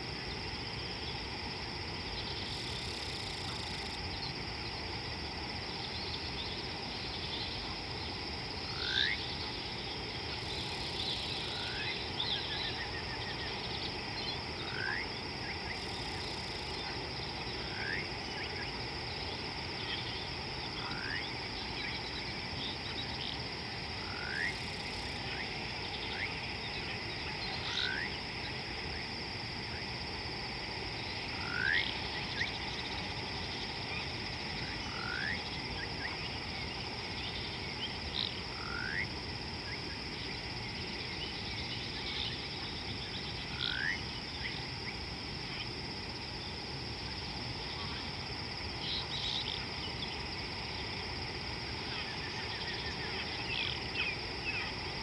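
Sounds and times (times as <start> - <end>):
high-pitched insect drone: 0.0 - 55.0.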